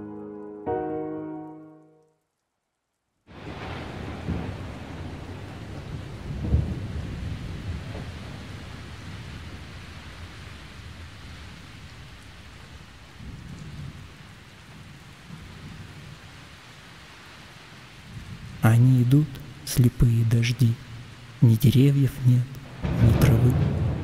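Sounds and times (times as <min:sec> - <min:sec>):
steady rain: 0:02.0 - 0:24.0
rolls of thunder: 0:03.3 - 0:10.1, 0:22.6 - 0:24.0.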